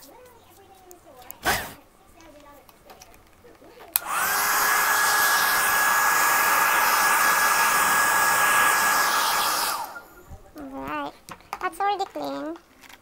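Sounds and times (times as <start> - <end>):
hair dryer running: 3.9 - 10.2.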